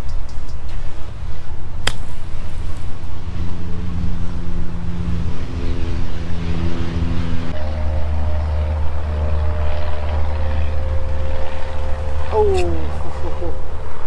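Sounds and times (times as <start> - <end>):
low engine drone: 0.0 - 14.0
wind rumbling on microphone: 0.0 - 14.0
golf club striking ball: 1.8 - 2.6.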